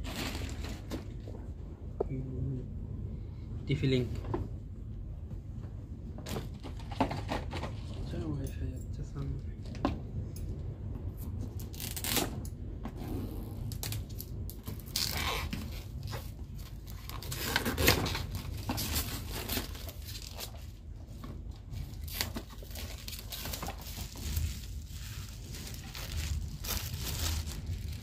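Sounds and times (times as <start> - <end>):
cardboard rustling: 0.0 - 1.3, 14.7 - 28.0
packing tape tearing: 11.7 - 12.4, 13.7 - 20.6, 21.9 - 28.0
plastic wrap crinkling: 13.7 - 20.8, 21.8 - 28.0.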